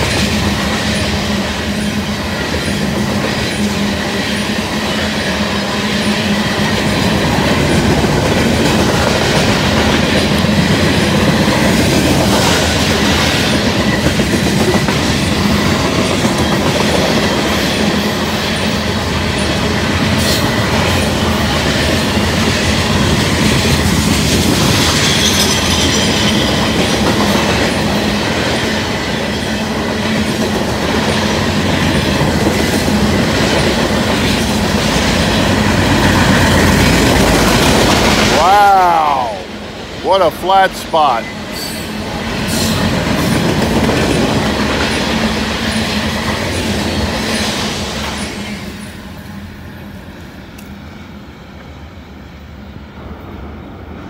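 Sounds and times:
train rumbling past: 0.0 - 54.0
high squeal: 24.9 - 26.5.

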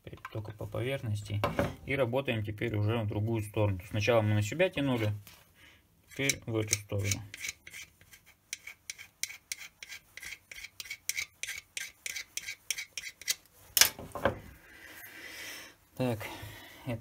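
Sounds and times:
modelling tool scraping plasticine: 3.8 - 13.8.

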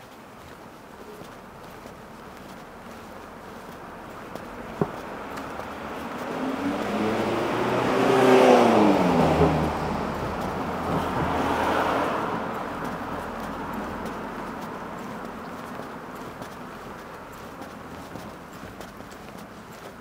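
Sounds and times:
vehicle passing quietly: 0.8 - 20.0
car driving past: 4.6 - 15.4.

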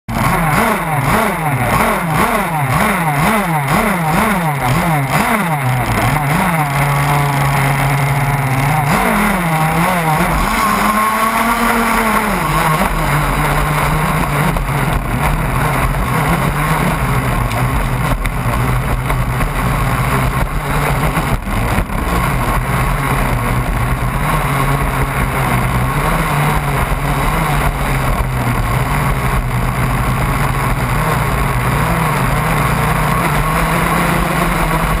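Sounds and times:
boat motor: 0.1 - 35.0.

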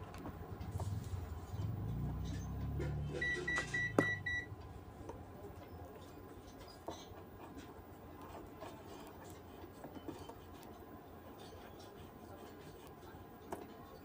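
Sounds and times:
short electronic beeps: 3.1 - 4.6.

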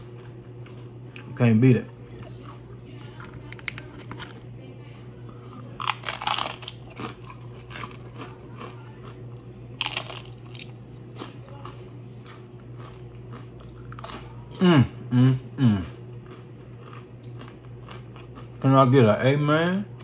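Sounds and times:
crunching and chewing chip: 5.4 - 14.6, 15.8 - 19.0.

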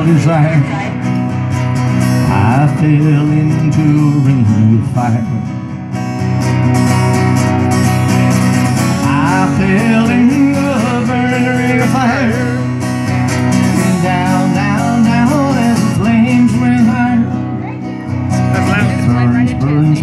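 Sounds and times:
man singing: 0.0 - 1.1, 2.2 - 5.6, 8.9 - 12.9, 13.6 - 17.6, 18.2 - 20.0
acoustic guitar strumming: 0.0 - 20.0.

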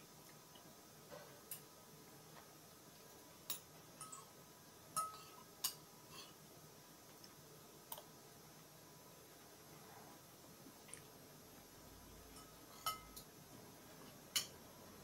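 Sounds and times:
cutlery clinking on ceramic plate: 3.5 - 4.3, 5.0 - 6.4, 12.3 - 13.3.

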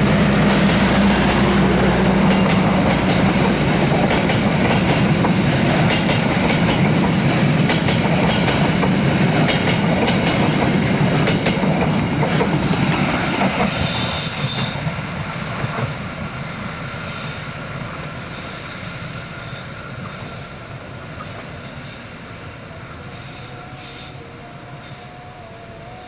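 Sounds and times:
passenger train rumbling past: 0.0 - 26.0
high wheel squeal: 13.6 - 15.0, 16.8 - 17.5, 18.1 - 22.1, 22.7 - 26.0.

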